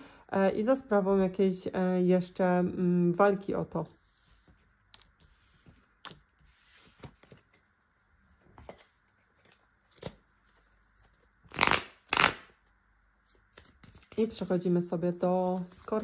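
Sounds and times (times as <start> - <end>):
cards being shuffled: 4.0 - 7.7, 8.4 - 16.0.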